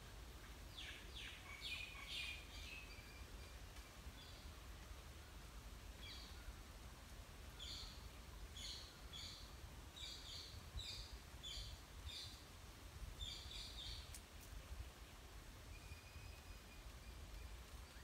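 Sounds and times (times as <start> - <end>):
bird chirping faintly: 13.2 - 18.0
faint clicks: 14.0 - 14.6.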